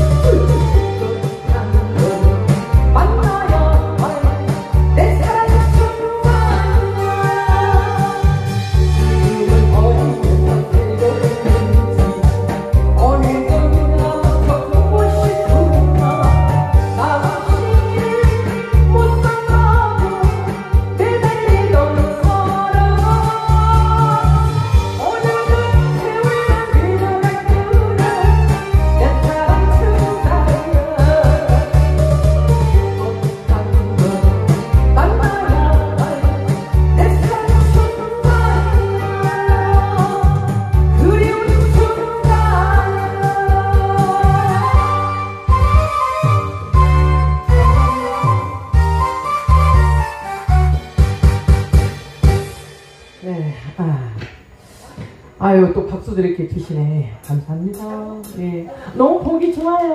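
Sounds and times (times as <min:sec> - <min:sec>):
woman singing through pa: 0:00.0 - 0:45.2, 0:47.0 - 0:48.8
accompaniment track with heavy bass beat: 0:00.0 - 0:54.5.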